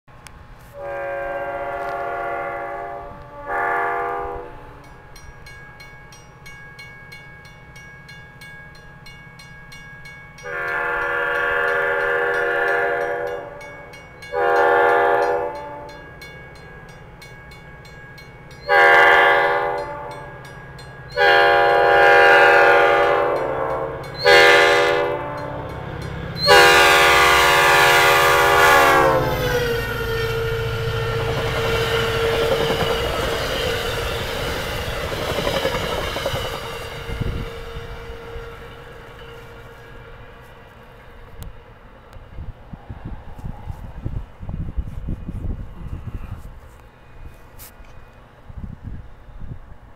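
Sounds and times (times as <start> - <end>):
diesel engine and train rumble: 0.1 - 49.9
locomotive air horn blasts: 0.6 - 4.8, 10.4 - 16.2, 18.6 - 20.4, 21.1 - 25.8, 26.4 - 41.4.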